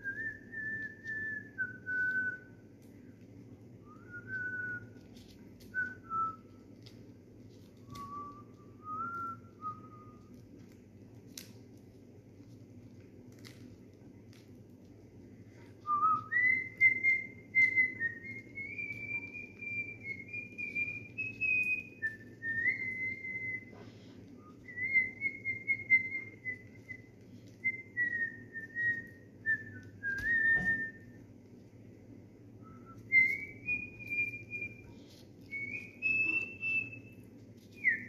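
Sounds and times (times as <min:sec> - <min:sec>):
person whistling a tune: 0:07.9 - 0:10.3, 0:15.8 - 0:31.2, 0:32.6 - 0:37.1.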